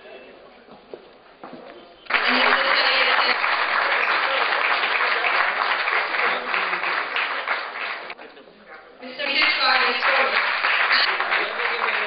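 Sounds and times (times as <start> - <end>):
audience applauding: 2.1 - 8.2, 9.2 - 12.0.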